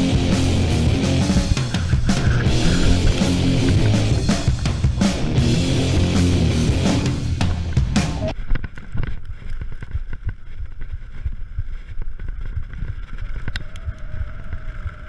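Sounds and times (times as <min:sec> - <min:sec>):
bike rattling over bumps: 0:08.3 - 0:15.0
wind buffeting microphone: 0:08.4 - 0:15.0.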